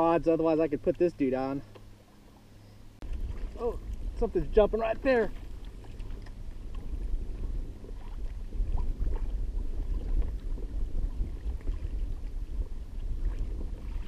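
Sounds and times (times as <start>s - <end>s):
water lapping against hull: 0.0s - 14.0s
wind buffeting microphone: 3.0s - 14.0s.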